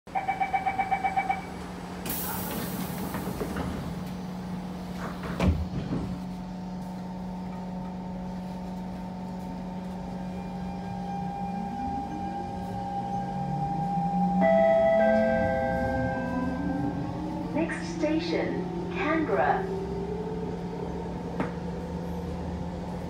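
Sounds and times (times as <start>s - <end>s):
train door-closing beeps: 0.1s - 4.2s, 10.2s - 18.3s
sliding doors hissing shut: 2.0s - 4.2s.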